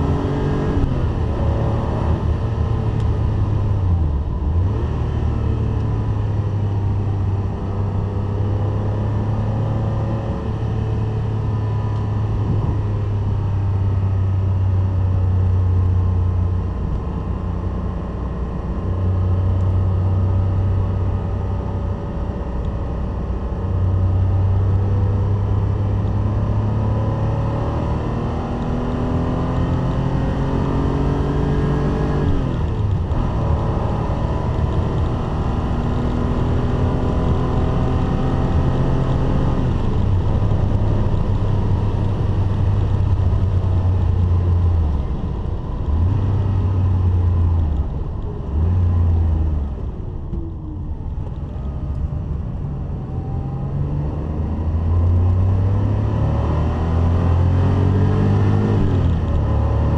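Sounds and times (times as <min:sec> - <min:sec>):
car engine revving: 0:23.6 - 0:59.9.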